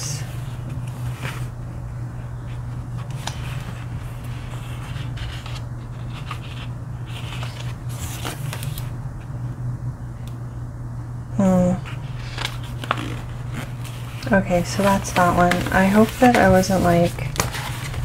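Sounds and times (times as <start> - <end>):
low hum: 0.0 - 18.0
paper rustling: 2.6 - 8.9, 12.0 - 18.0.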